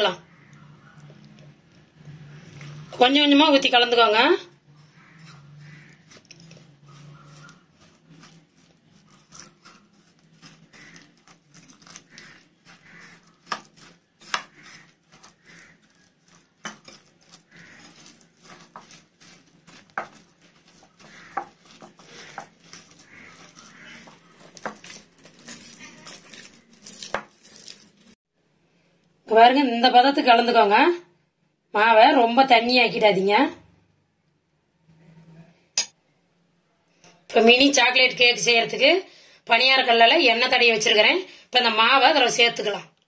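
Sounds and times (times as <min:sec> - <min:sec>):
spoon scraping and clinking bowl: 0:04.7 - 0:27.9.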